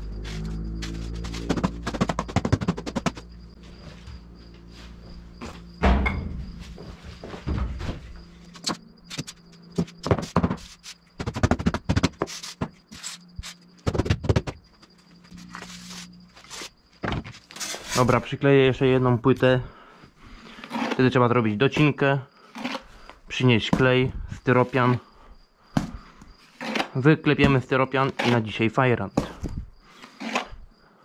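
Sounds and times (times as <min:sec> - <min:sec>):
insect chirping: 0:00.0 - 0:31.0
squeaky rubbing of foam boards: 0:00.2 - 0:03.3, 0:07.2 - 0:14.6, 0:15.3 - 0:18.1, 0:29.4 - 0:30.6
scattered knocks: 0:01.4 - 0:03.3.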